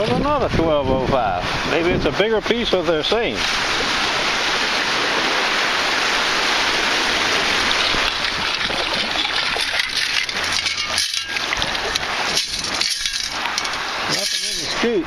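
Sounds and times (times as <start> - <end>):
water sloshing and rushing: 0.0 - 15.0
sand scoop splashing: 6.8 - 15.0
gravel and shell crackling: 8.3 - 14.8.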